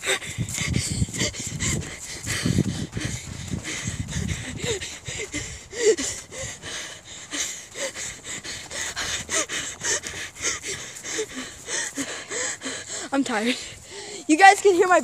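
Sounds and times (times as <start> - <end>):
person panting: 0.0 - 14.9.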